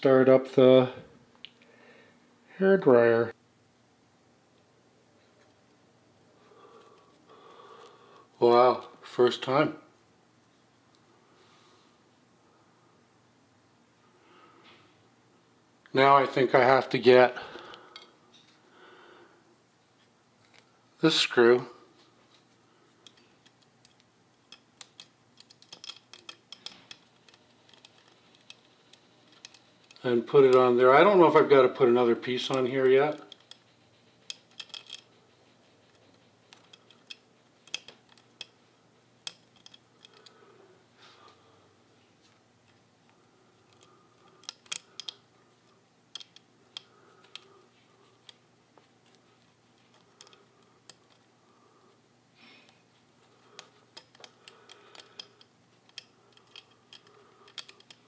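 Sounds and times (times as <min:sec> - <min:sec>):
clicks of small metal parts: 0:23.0 - 0:30.0, 0:32.5 - 0:35.1, 0:35.9 - 0:38.6, 0:39.2 - 0:40.4, 0:43.7 - 0:45.2, 0:46.1 - 0:47.5, 0:49.8 - 0:51.2, 0:53.5 - 0:58.0.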